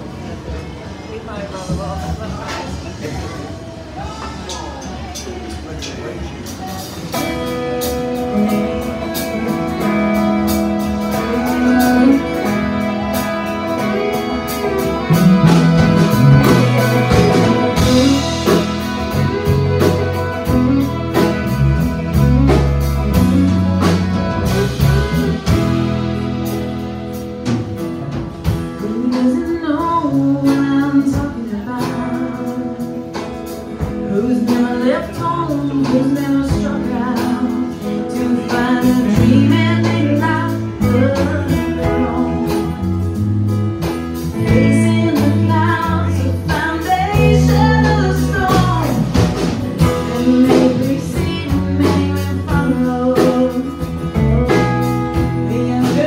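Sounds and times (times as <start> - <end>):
acoustic guitar: 0.0 - 56.0
electric guitar: 0.0 - 56.0
fiddle: 9.3 - 26.7.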